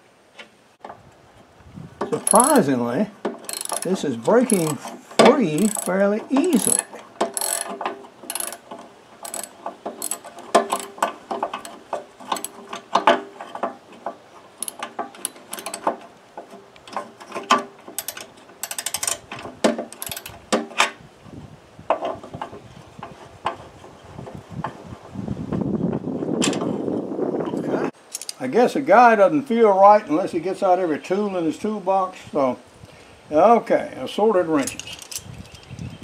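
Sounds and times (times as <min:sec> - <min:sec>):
socket ratchet clicking: 0:02.2 - 0:02.6, 0:03.5 - 0:04.8, 0:05.5 - 0:12.6, 0:14.6 - 0:15.9, 0:18.0 - 0:19.2, 0:19.9 - 0:20.4.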